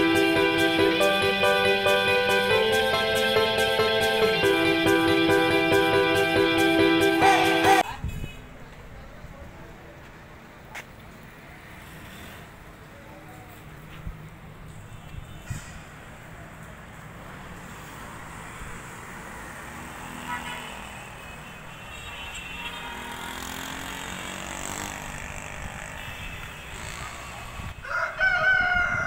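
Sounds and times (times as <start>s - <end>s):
distant road traffic hum: 0.0s - 29.0s
rooster crowing: 27.8s - 29.0s.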